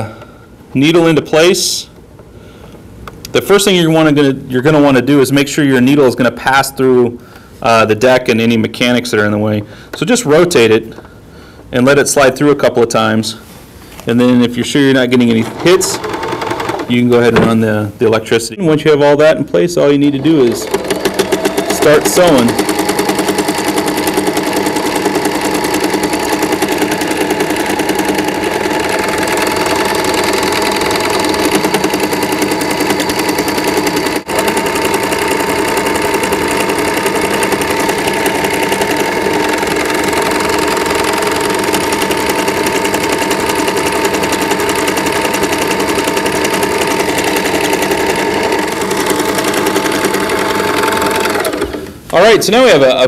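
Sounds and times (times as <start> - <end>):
sewing machine running: 15.0 - 17.2, 20.1 - 52.0.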